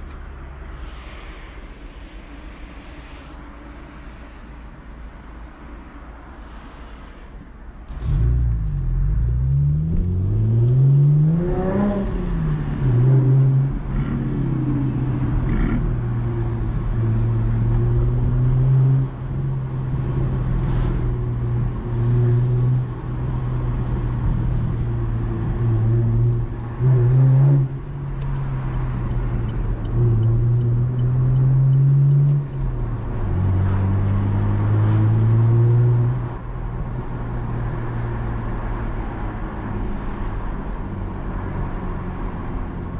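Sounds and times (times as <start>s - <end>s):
car engine accelerating: 7.9s - 36.5s.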